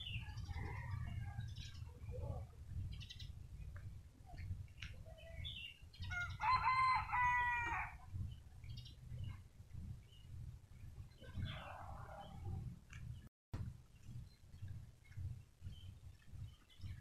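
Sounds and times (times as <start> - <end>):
steady low rumble: 0.0 - 17.0
rooster crowing: 6.1 - 8.0.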